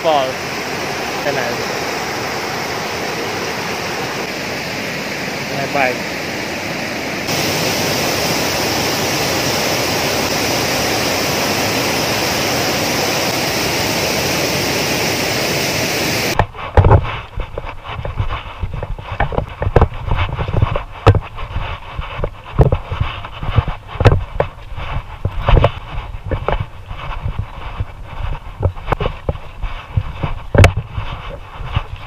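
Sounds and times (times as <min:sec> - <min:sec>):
waterfall rushing: 0:00.0 - 0:16.4.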